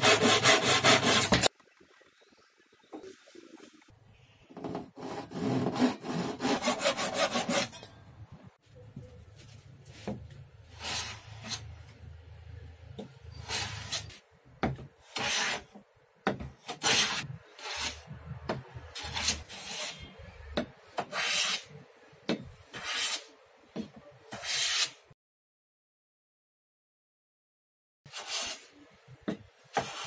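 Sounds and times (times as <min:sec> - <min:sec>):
hand plane shaving wood: 0:00.0 - 0:01.5, 0:05.0 - 0:07.7.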